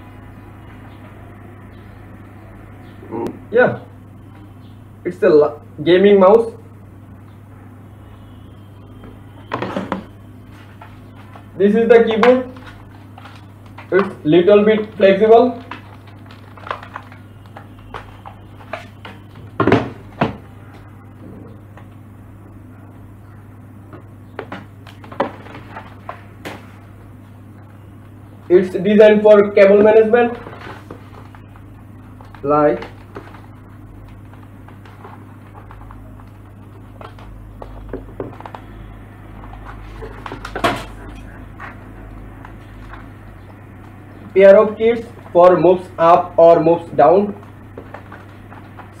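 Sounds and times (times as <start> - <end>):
plastic keyboard case handled: 15.6 - 20.4
keyboard knocking on box: 37.0 - 38.7.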